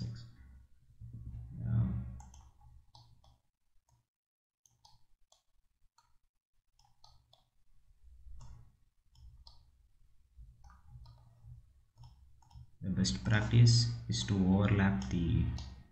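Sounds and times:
computer mouse clicking: 2.2 - 4.0, 4.6 - 7.6, 8.3 - 9.8, 10.6 - 12.8.

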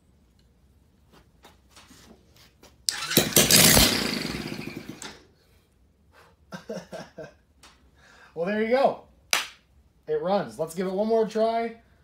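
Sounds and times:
small engine starting and dying: 2.9 - 5.2.

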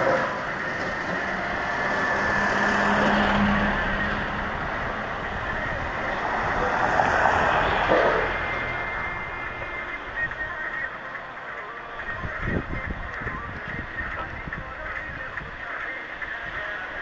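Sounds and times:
steady rushing noise: 0.0 - 17.0
motor vehicle passing: 0.3 - 11.3.

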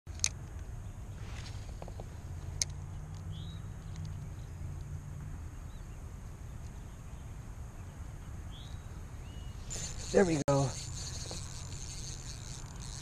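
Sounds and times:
bird chirp: 2.9 - 4.8, 5.4 - 13.0.

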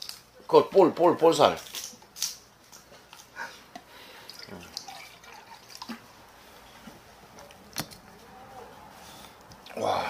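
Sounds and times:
drink poured into metal cup: 4.3 - 6.0.

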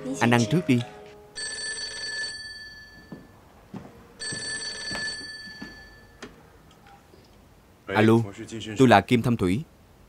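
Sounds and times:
telephone ringing: 1.3 - 3.3, 4.2 - 6.2.

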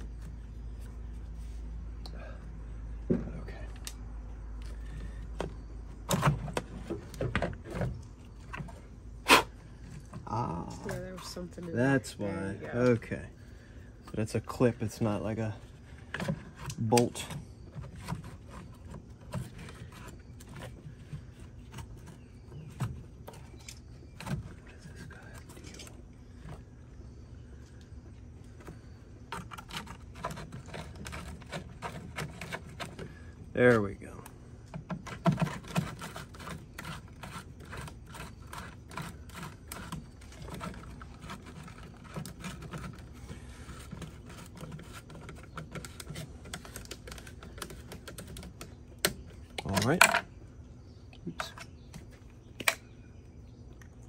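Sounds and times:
plastic scraping: 4.6 - 26.8, 28.5 - 50.3.

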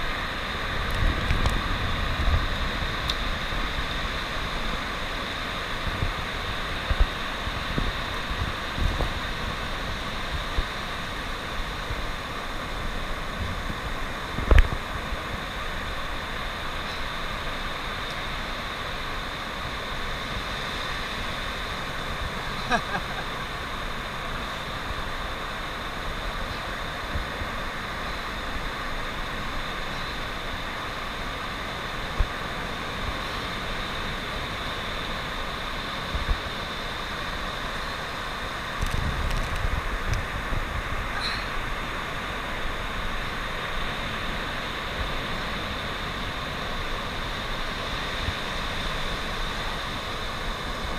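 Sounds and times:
wind buffeting microphone: 0.0 - 16.1, 38.7 - 43.4
surf hiss: 0.0 - 50.9.

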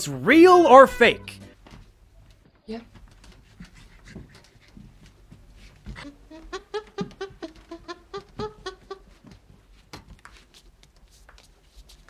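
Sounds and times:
chimpanzee hooting: 6.0 - 9.2.

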